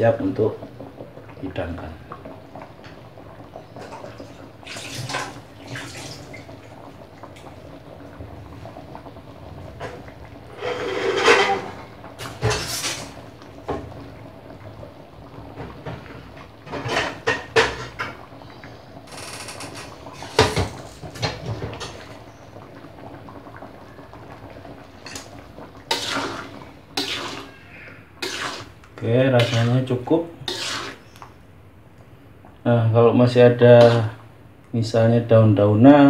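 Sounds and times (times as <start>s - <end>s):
stirring thick sauce: 25.8s - 31.3s
utensil knocking and scraping wok: 25.9s - 27.5s, 28.2s - 28.7s, 30.5s - 31.0s.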